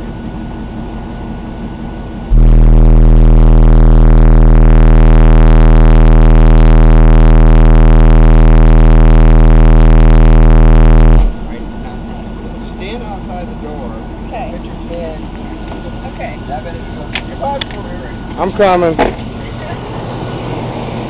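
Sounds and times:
distorted bass test tone: 2.2 - 14.3.

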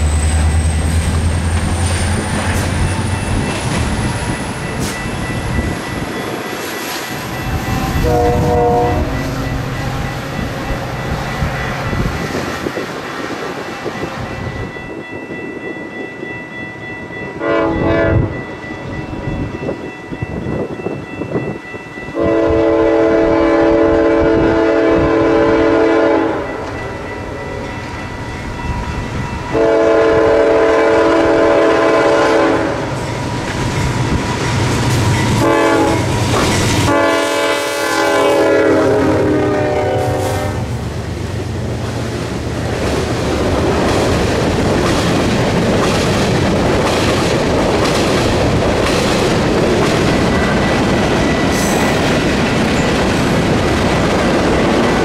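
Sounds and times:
train wheels on rails: 0.0 - 55.0
locomotive air horn blasts: 7.7 - 9.2, 17.4 - 18.3, 22.2 - 26.6, 29.5 - 33.0, 35.4 - 36.2, 36.8 - 40.7.

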